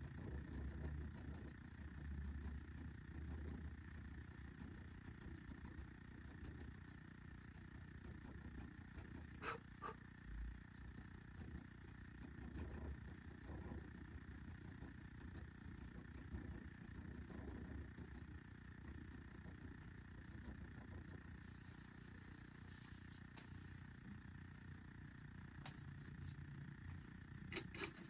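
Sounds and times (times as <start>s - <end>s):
low room hum: 0.0s - 28.0s.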